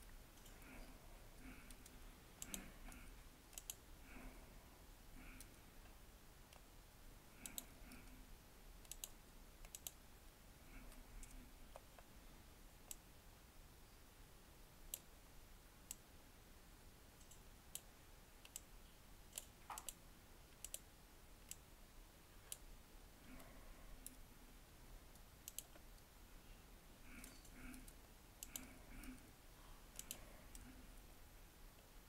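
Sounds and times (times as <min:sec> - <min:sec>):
computer mouse and keyboard clicks: 0:00.3 - 0:04.3, 0:05.2 - 0:05.6, 0:07.4 - 0:08.2, 0:08.8 - 0:10.0, 0:10.7 - 0:12.1, 0:17.2 - 0:18.7, 0:19.3 - 0:21.7, 0:23.2 - 0:24.2, 0:25.1 - 0:26.0, 0:27.0 - 0:29.2, 0:29.9 - 0:30.8.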